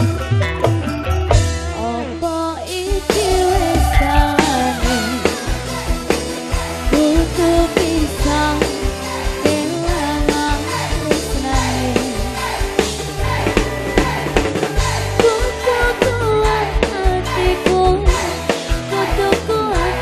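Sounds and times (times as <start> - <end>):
deep bass notes: 0.0 - 9.2
live band: 0.0 - 20.0
woman singing into microphone: 1.8 - 5.6, 6.8 - 12.6, 15.2 - 20.0
drums beat: 2.9 - 20.0.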